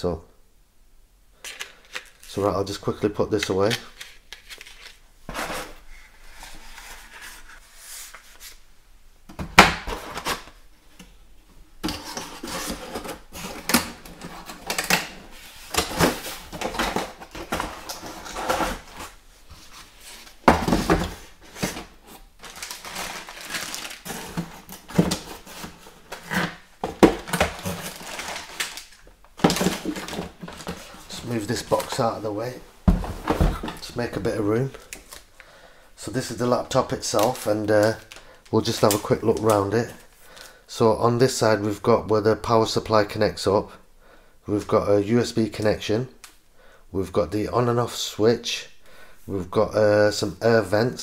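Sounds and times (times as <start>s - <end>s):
cardboard and plastic case handling: 11.8s - 32.2s, 32.9s - 33.9s.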